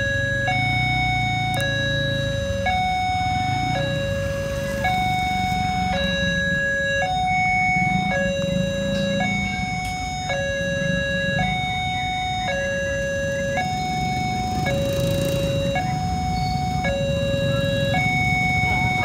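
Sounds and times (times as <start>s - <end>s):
level crossing two-tone alarm chime: 0.0s - 4.3s.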